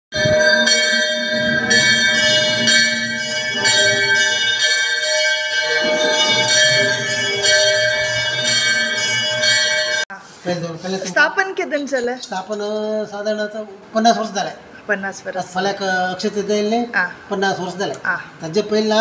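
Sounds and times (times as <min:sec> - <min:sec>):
metal bell ringing: 0:00.1 - 0:10.1.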